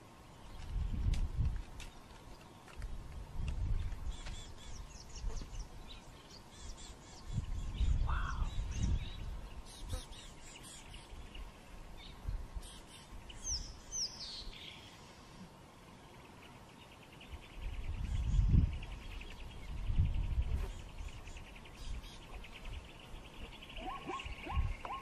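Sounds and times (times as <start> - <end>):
birds chirping and whistling: 3.7 - 15.1, 17.3 - 25.0.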